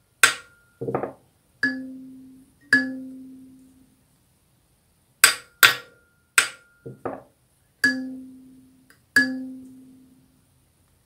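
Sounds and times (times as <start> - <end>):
kalimba tine plucked: 1.6 - 3.6, 7.8 - 8.6, 9.2 - 10.1
tuning hammer tapping metal tine: 1.6 - 3.8, 5.2 - 7.0, 7.8 - 10.2.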